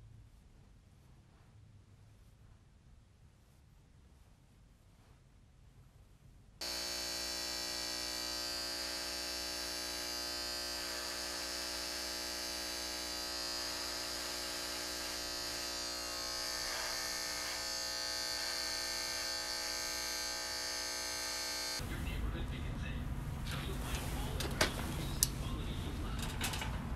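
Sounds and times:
electric hair clipper buzzing: 6.6s - 21.8s.

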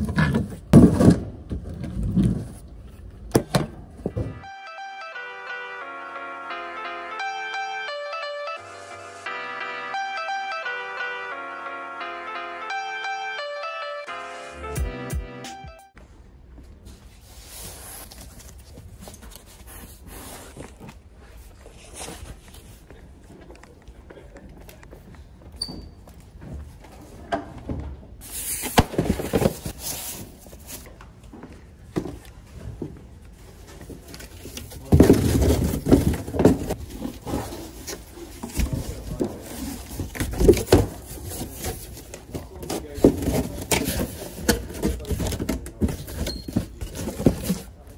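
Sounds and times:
cardboard boxes knocking and thudding: 0.0s - 2.6s, 28.5s - 30.8s, 31.9s - 47.9s.

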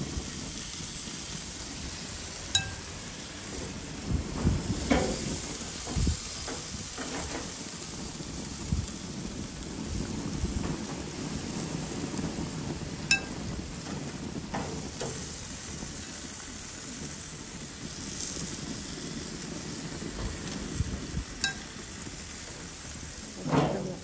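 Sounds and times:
meat sizzling on a grill: 0.0s - 24.0s
sharp metallic clinks: 2.6s - 2.9s, 13.1s - 13.4s, 21.4s - 21.7s.

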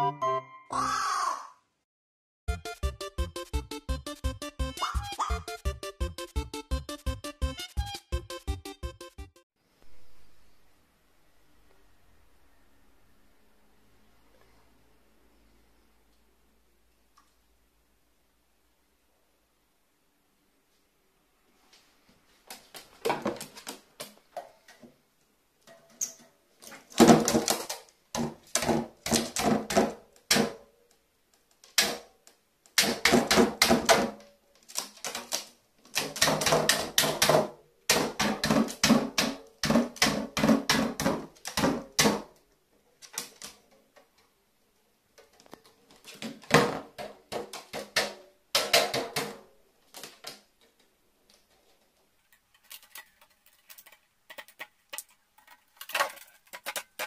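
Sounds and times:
can rattling on metal sheet: 52.2s - 57.0s
crow pecking metal can: 52.6s - 57.0s.

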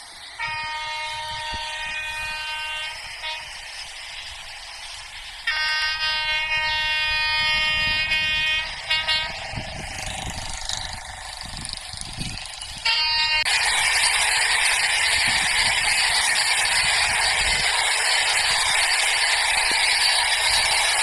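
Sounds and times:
distant train horn blasts: 0.3s - 11.8s, 12.8s - 13.7s.

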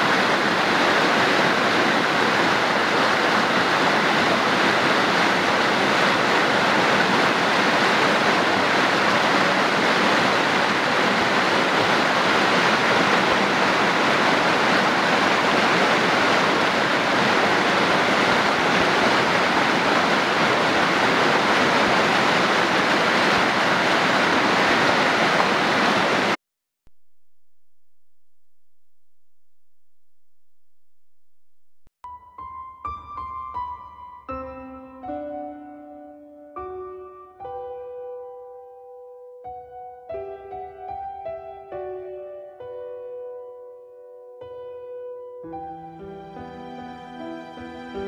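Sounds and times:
creek rushing over rocks: 0.0s - 26.4s.

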